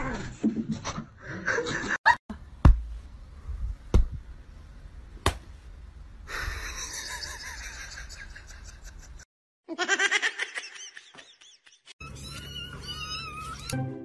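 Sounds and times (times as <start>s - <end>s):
sharp hand slaps: 5.2s - 5.5s.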